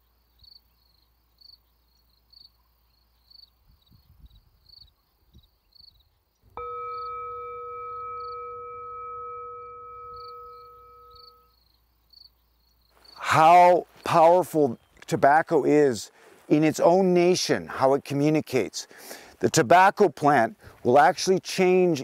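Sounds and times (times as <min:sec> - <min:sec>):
crickets chirping: 0:00.0 - 0:14.1
struck bell tone: 0:06.5 - 0:11.5.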